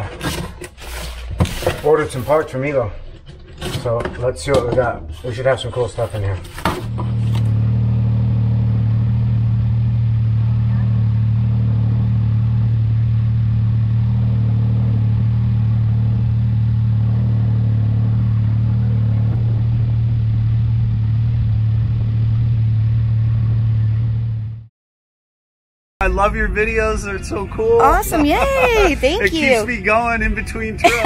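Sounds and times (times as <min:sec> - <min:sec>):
engine idling from inside cab: 0:09.4 - 0:11.3.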